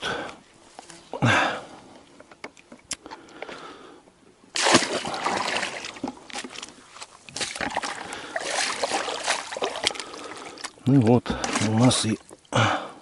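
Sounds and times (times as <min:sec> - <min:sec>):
water splashing and sloshing: 0:04.5 - 0:12.8.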